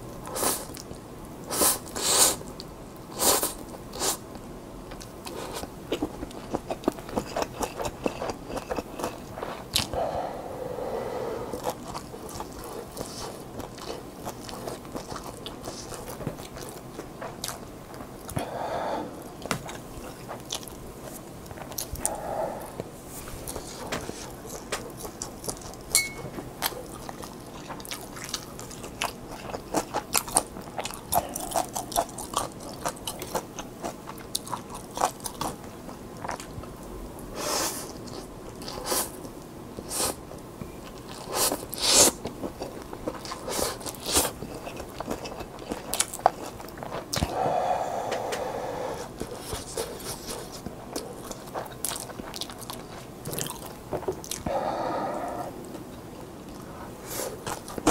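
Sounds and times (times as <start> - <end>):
wet chewing: 4.9 - 10.1, 11.5 - 18.5, 19.3 - 36.8, 40.8 - 57.9.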